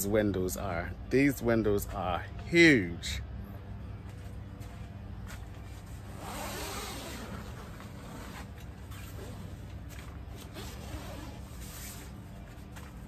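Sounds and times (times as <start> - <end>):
nylon fabric rustling: 5.7 - 13.0
zipper being pulled: 6.1 - 9.7, 10.3 - 12.1.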